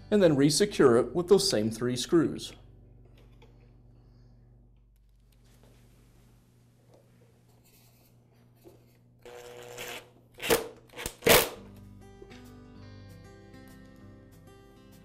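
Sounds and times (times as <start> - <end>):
background music: 0.0 - 1.7, 11.1 - 15.0
power screwdriver running: 9.2 - 11.6.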